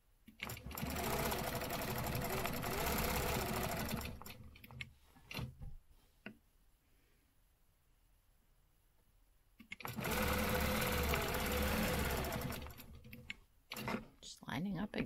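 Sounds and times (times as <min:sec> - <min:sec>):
quilting machine stitching: 0:00.3 - 0:05.5, 0:09.7 - 0:14.2.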